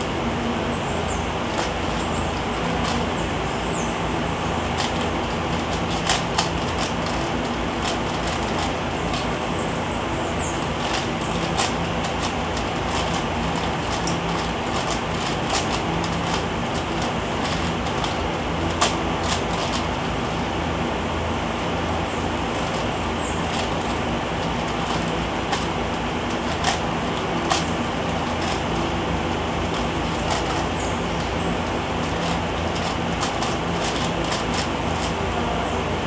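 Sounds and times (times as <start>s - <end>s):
steady hum and hiss: 0.0s - 36.0s
plastic puzzle cube clicking: 4.8s - 9.4s, 10.7s - 19.9s, 22.6s - 35.2s.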